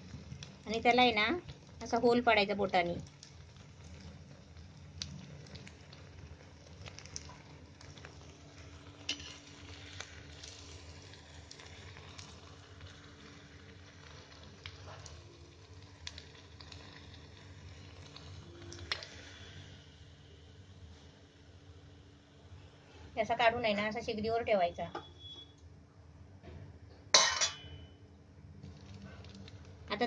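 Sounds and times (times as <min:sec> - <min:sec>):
food sizzling in oil: 0:00.0 - 0:22.4.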